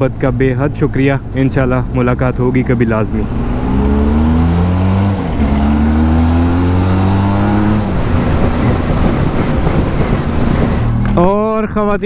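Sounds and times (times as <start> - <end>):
wind and road noise: 0.0 - 12.0
motorcycle engine accelerating: 3.0 - 11.3.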